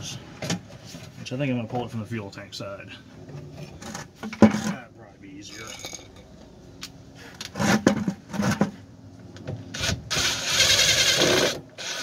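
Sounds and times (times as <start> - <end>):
rubber hose scraping and rubbing: 7.2 - 8.8.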